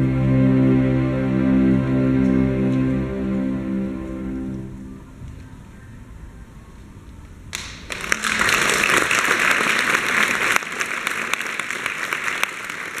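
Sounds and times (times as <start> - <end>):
single sharp claps: 7.5 - 13.0
audience applause: 7.6 - 13.0.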